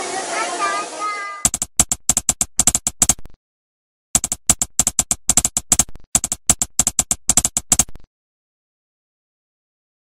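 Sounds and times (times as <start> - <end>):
keyboard typing clicks: 1.5 - 3.4, 4.2 - 8.1.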